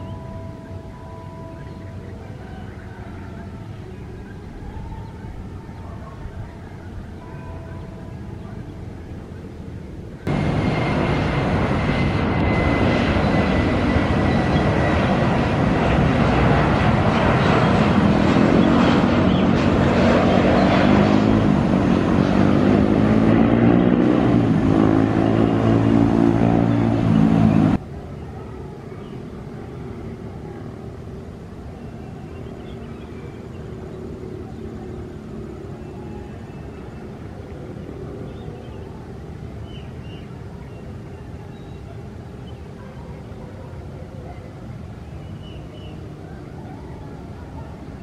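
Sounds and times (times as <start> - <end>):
wavering shifting tones: 6.9 - 27.8
jet engines roaring: 8.3 - 48.0.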